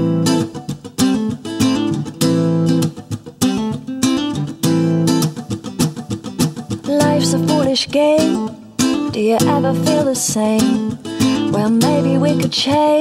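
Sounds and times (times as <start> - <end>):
strummed guitar chords: 0.0 - 13.0.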